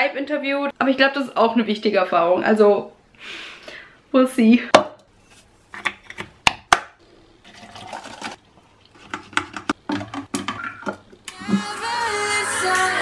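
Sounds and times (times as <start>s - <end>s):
liquid pouring: 7.4s - 9.0s
music: 11.3s - 13.0s.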